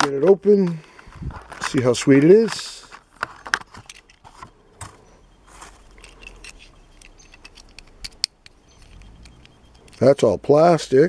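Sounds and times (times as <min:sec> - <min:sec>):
plastic packaging crinkling: 0:00.8 - 0:04.5.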